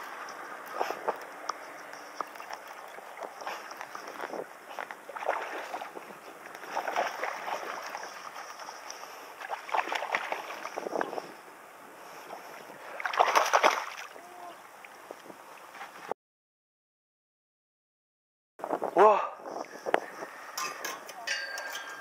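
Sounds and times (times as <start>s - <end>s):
fish thrashing and splashing: 0.1s - 11.3s, 12.8s - 14.2s.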